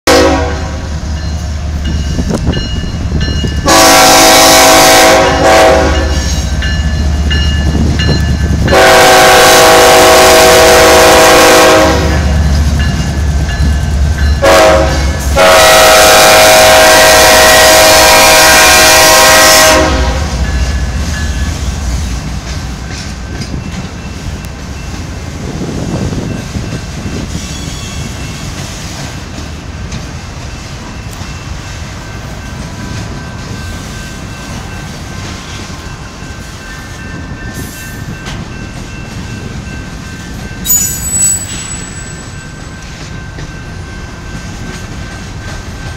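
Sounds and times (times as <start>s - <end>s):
locomotive air horn blasts: 0.1s - 0.9s, 3.6s - 6.3s, 8.7s - 12.4s, 14.4s - 20.5s
freight train rumbling on rails: 0.1s - 45.9s.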